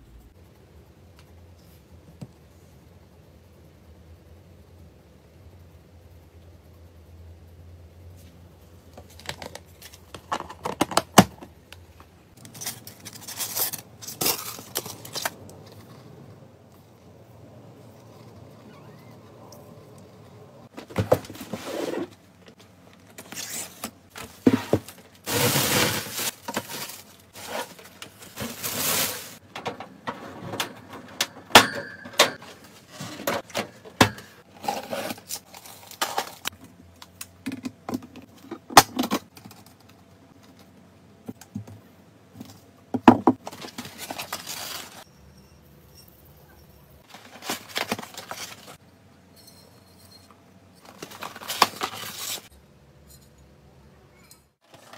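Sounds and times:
rustling and scraping: 0:11.9 - 0:31.4, 0:32.4 - 0:36.6, 0:47.0 - 0:48.8, 0:49.4 - 0:52.5.

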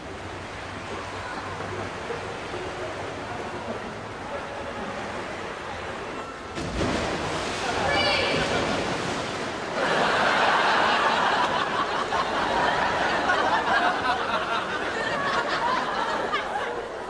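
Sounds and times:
audience laughter: 0:09.7 - 0:17.0.

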